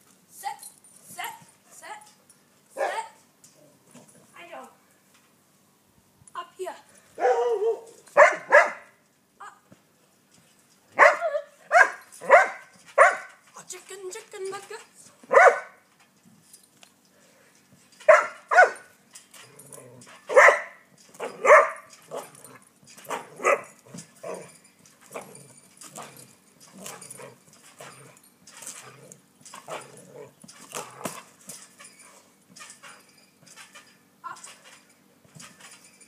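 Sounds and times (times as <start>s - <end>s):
dog barking: 7.2s - 8.8s, 11.0s - 13.3s, 15.3s - 15.8s, 18.1s - 18.8s, 20.3s - 21.8s
dog yipping: 15.3s - 15.8s, 18.1s - 18.8s, 20.3s - 22.3s.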